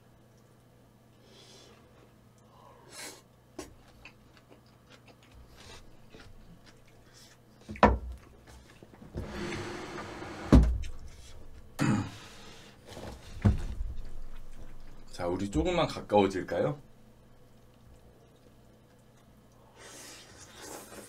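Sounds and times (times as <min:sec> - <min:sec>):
soft chewing: 0:01.6 - 0:09.1, 0:12.8 - 0:15.1, 0:17.3 - 0:21.0.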